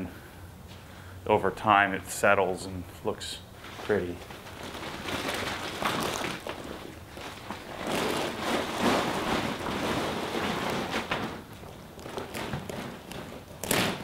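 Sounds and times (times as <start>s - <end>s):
plastic sheet rustling and crinkling: 3.6s - 14.0s.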